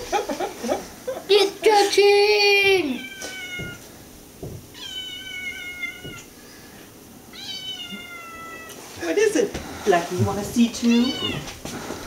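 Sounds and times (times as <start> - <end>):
cat meowing: 2.8 - 3.8, 4.7 - 6.3, 7.3 - 8.8, 10.8 - 11.6.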